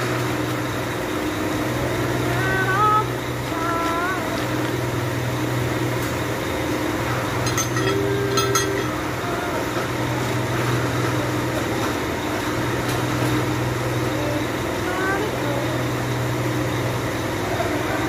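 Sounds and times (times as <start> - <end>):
low background hum: 0.0 - 18.0
light clicks and clinks: 7.4 - 9.0.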